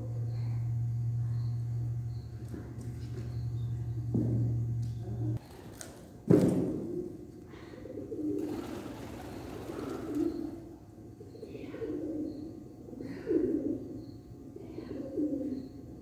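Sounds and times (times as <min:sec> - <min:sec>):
pigeons cooing: 0:06.8 - 0:15.8.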